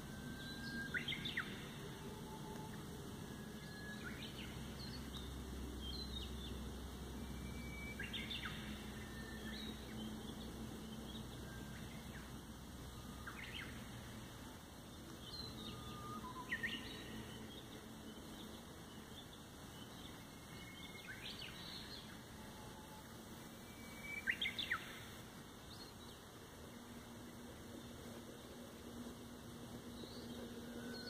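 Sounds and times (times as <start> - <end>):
birds chirping and whistling: 0.0 - 6.6, 7.2 - 14.1, 15.1 - 23.0, 23.6 - 26.2.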